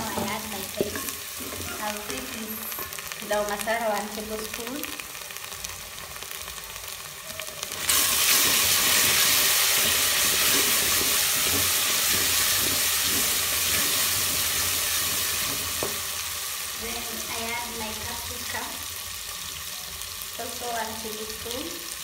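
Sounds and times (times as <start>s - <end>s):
wooden spoon stirring: 0.0s - 3.2s
onions sizzling in oil: 0.0s - 22.0s.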